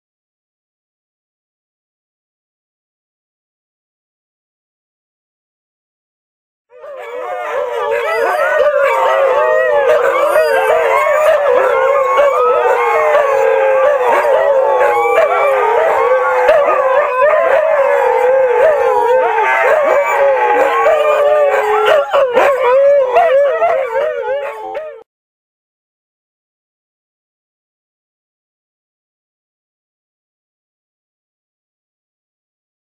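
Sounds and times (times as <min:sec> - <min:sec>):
dogs howling together: 0:06.7 - 0:25.1.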